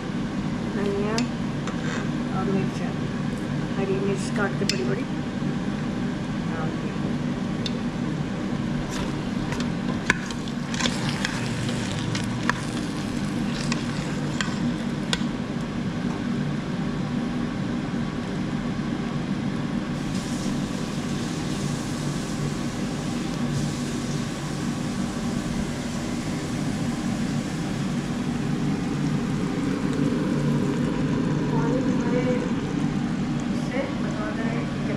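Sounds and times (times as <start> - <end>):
steady low hum: 0.0 - 34.9
food sizzling: 8.8 - 15.4, 19.9 - 33.0
ladle scraping metal pot: 10.1 - 15.2.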